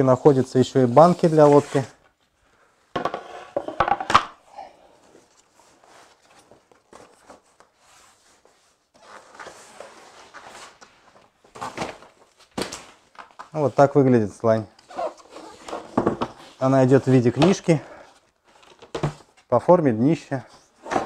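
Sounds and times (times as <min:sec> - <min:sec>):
boards knocking on tiled floor: 0:03.0 - 0:04.3.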